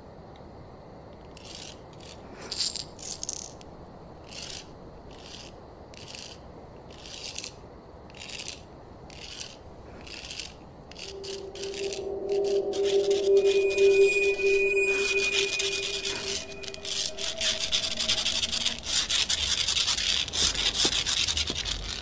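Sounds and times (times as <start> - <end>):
steady low rumble: 10.9 - 19.8.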